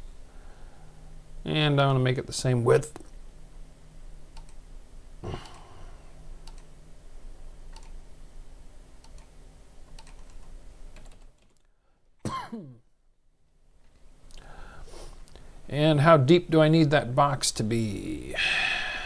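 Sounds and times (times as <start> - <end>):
faint steady hum: 0.0 - 19.0
keyboard and mouse clicks: 4.3 - 4.6, 6.4 - 6.7, 7.7 - 8.0, 9.0 - 9.3, 9.9 - 11.7.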